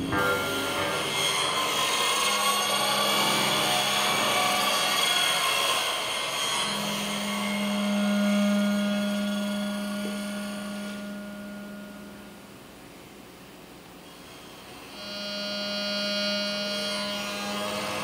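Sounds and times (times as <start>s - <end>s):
noisy synthesizer texture: 0.0s - 13.1s
thin high synth tones: 0.0s - 13.1s
low synthesizer drone: 0.0s - 18.0s.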